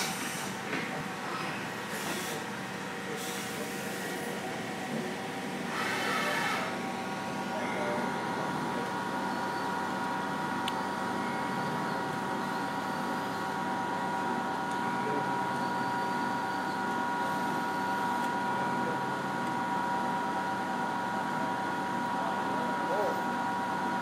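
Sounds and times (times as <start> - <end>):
lathe milling machine whine: 0.0 - 24.0.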